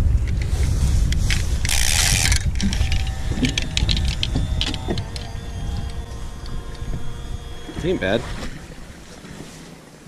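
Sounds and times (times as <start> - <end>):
wind rumble on microphone: 0.0 - 10.0
fishing reel ratcheting clicks: 1.3 - 8.1.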